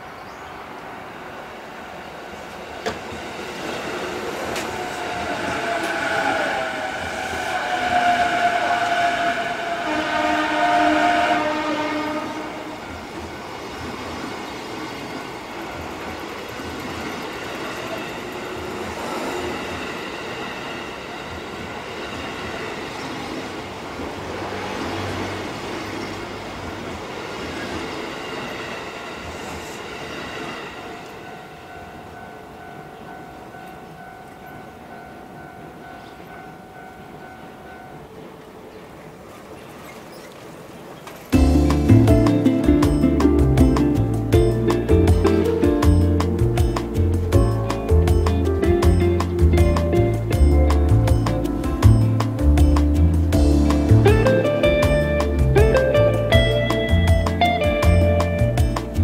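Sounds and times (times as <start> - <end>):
train passing with whine: 0.0 - 59.0
level crossing warning bell: 31.0 - 38.4, 41.4 - 59.0.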